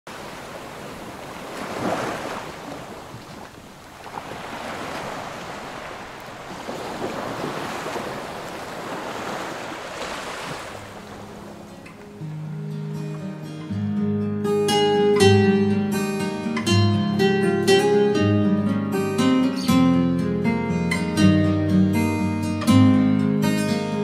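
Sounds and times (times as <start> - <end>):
waves breaking on a beach: 0.1 - 12.5.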